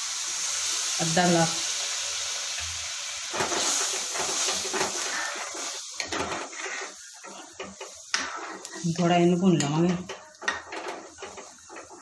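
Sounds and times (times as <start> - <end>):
milk sizzling in a pan: 0.0 - 12.0
steel spoon scraping a pan: 3.3 - 12.0.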